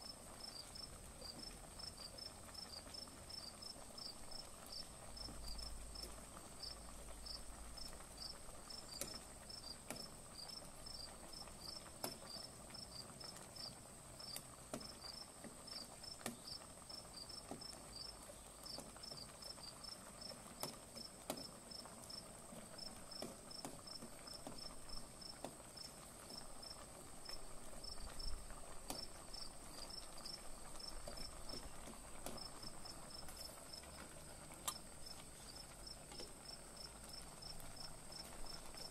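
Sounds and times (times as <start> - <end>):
crickets chirping: 35.0 - 38.9.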